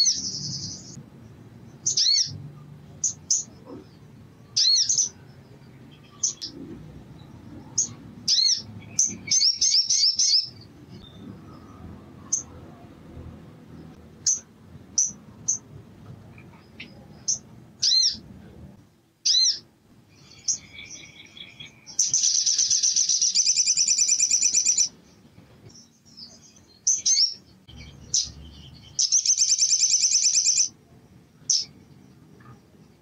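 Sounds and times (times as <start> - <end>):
bird chirping: 0.0 - 18.3, 19.2 - 33.0
bird trilling: 1.8 - 2.4, 4.6 - 5.2, 7.8 - 10.6, 16.8 - 18.2, 19.2 - 24.9, 26.8 - 30.8.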